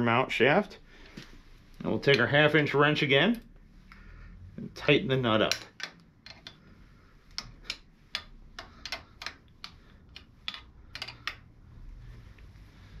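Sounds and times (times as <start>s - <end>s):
wrench clicking: 5.4s - 6.6s, 7.4s - 11.5s.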